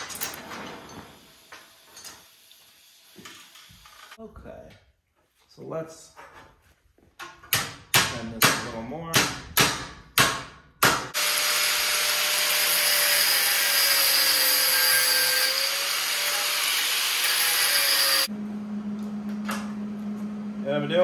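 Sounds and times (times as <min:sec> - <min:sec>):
hammer striking steel bar: 0:07.5 - 0:11.2
angle grinder grinding steel: 0:11.2 - 0:18.3.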